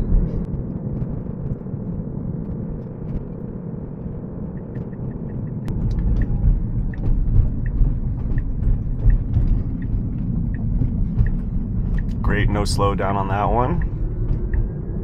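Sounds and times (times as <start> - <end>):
tyre and road noise: 0.0 - 15.0.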